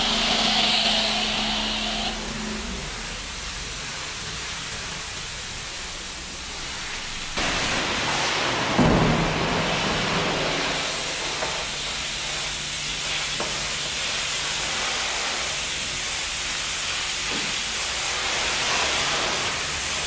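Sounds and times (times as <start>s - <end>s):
pressure washer spraying: 0.0s - 20.0s
water splashing and pouring: 2.8s - 20.0s.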